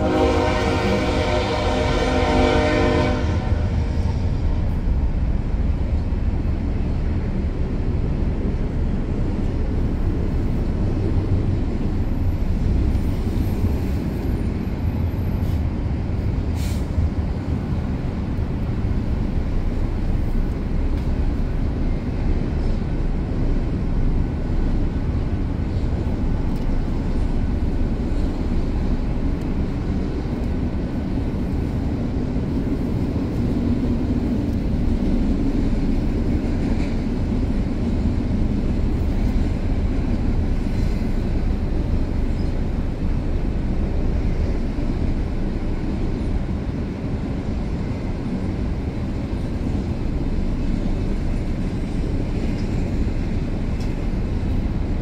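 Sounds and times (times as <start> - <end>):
train horn blast: 0.0 - 3.9
train wheels rumbling on rails: 0.0 - 55.0.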